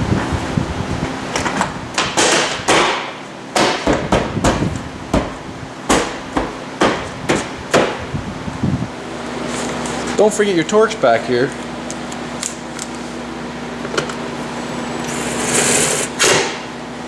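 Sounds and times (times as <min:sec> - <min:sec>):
heater fan hum: 0:00.0 - 0:17.0.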